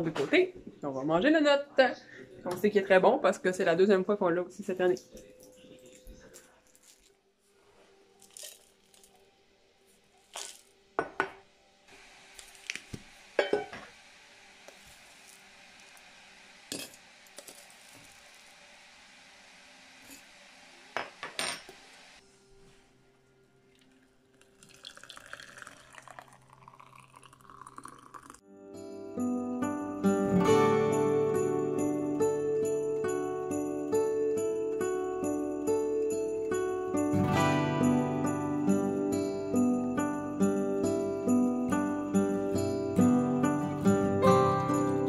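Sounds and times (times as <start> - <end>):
faint steady hiss: 7.4 - 28.4
metal tin and mug clinking: 13.4 - 13.9, 16.7 - 18.1
water pouring into mug: 23.7 - 28.4.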